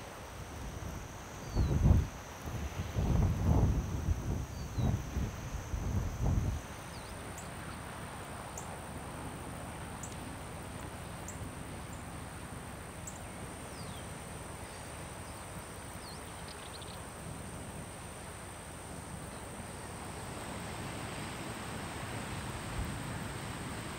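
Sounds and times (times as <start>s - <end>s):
low rumble of wind: 0.0s - 23.9s
high-pitched insect drone: 0.4s - 6.7s.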